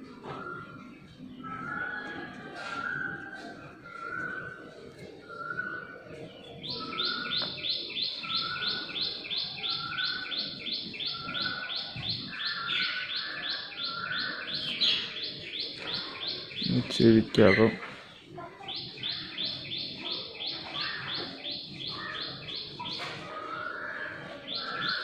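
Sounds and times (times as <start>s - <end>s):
bird call: 18.7s - 25.0s.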